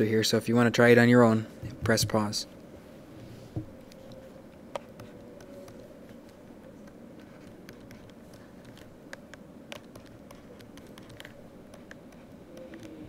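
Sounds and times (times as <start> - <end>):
faint steady hum: 0.0 - 13.0
stylus tapping on pen tablet: 6.8 - 13.0.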